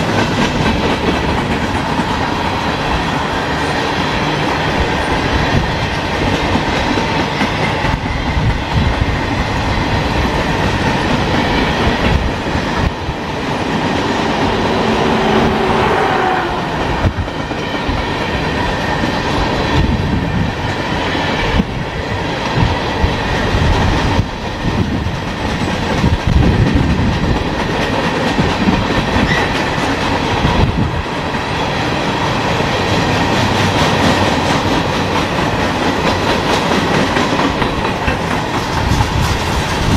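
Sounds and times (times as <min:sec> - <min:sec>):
wheels clacking over rail joints: 0:00.0 - 0:08.2, 0:23.7 - 0:39.9
freight train wheels rumbling: 0:00.0 - 0:39.9.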